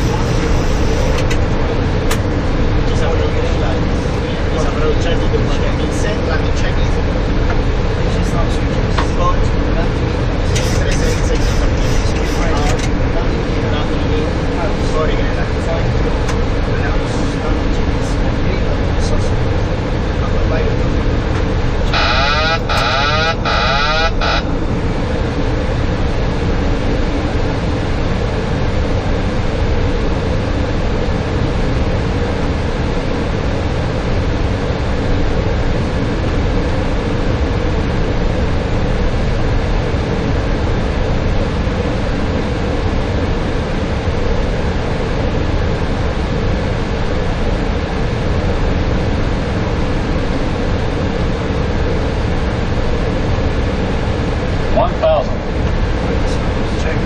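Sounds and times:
air rushing past cockpit: 0:00.0 - 0:04.5
aircraft engine hum: 0:00.0 - 0:57.0
low steady drone: 0:00.0 - 0:57.0
warbling electronic tone: 0:21.8 - 0:24.5.

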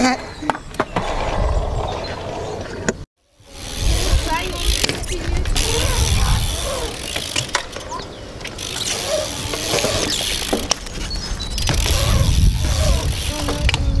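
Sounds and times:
bike freewheel ticking: 0:03.4 - 0:14.0.

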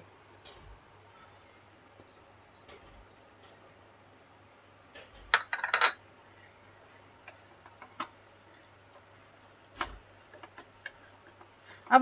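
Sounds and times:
wooden spatula scraping a pan: 0:09.8 - 0:12.0.

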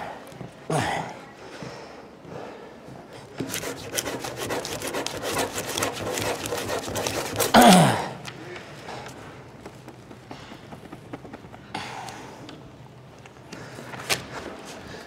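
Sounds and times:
pen scratching on paper: 0:03.4 - 0:07.6.

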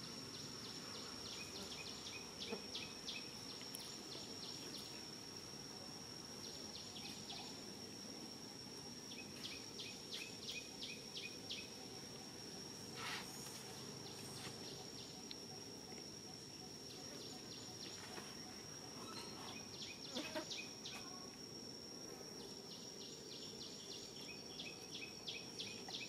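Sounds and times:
high-pitched insect drone: 0:00.0 - 0:26.0.

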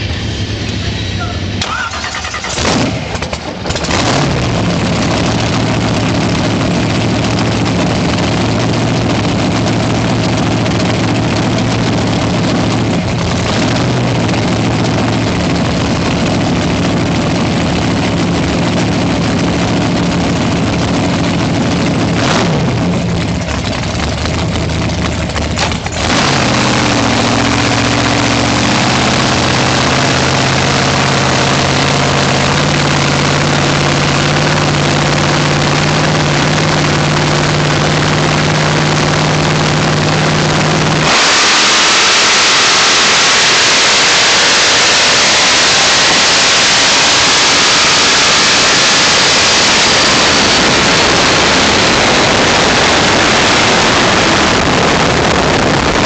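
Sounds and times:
race boat engine running: 0:00.0 - 0:56.0.

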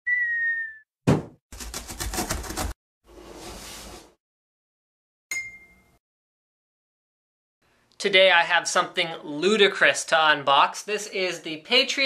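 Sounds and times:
bright ding: 0:05.3 - 0:06.0.

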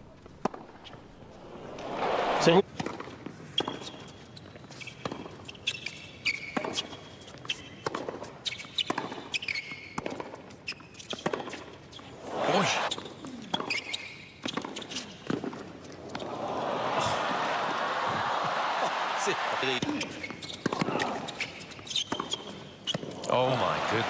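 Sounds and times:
racket hitting tennis ball: 0:00.4 - 0:03.8
sneaker squeaks: 0:03.5 - 0:16.4, 0:19.7 - 0:23.3.

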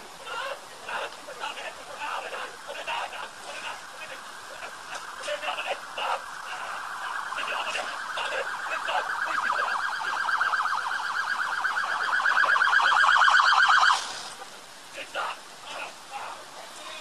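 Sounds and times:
siren in fast warble: 0:03.6 - 0:14.2.

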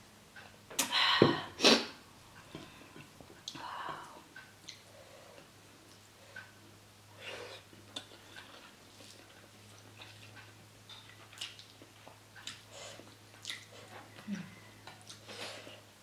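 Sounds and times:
faint low hum: 0:00.0 - 0:16.0
person chewing and smacking: 0:07.6 - 0:15.8.

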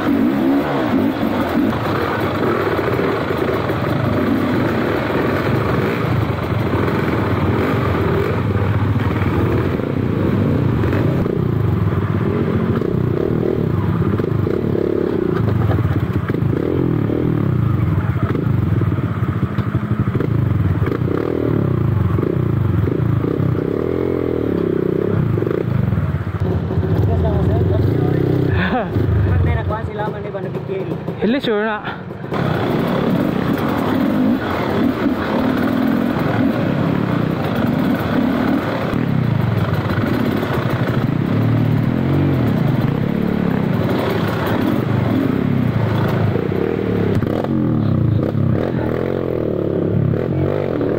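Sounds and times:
dirt bike engine revving: 0:00.0 - 0:18.8, 0:32.3 - 0:50.9.

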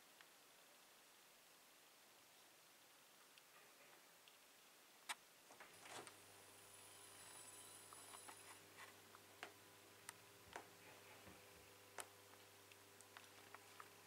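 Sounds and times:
lamp ballast humming: 0:05.1 - 0:14.0
faint high whine: 0:05.5 - 0:14.0.

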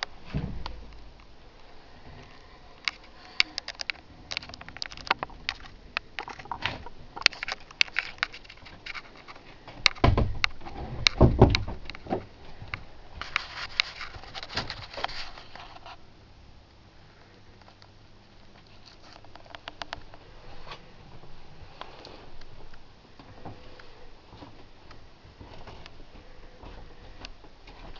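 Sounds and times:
heavy thumps: 0:00.2 - 0:01.2, 0:09.6 - 0:12.7
clicks and knocks of handling: 0:02.2 - 0:16.0, 0:17.6 - 0:20.8.

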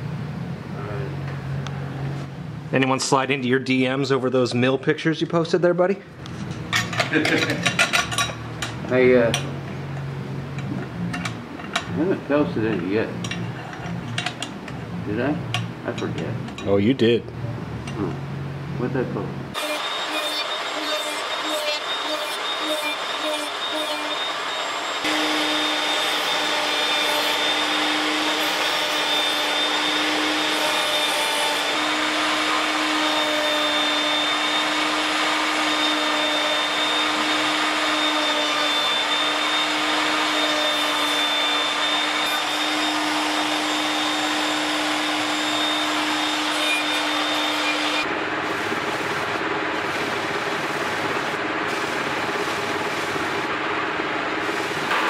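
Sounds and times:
disc sander grinding wood: 0:19.5 - 0:48.1
router whining: 0:19.5 - 0:49.3.

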